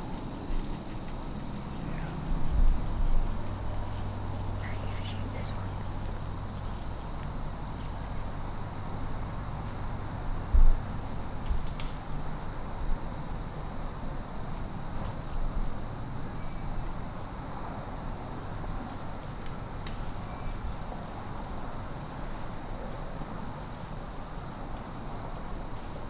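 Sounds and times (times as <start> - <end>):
faint low rumble and hiss: 0.0 - 26.0
high-pitched insect trill: 0.3 - 11.4.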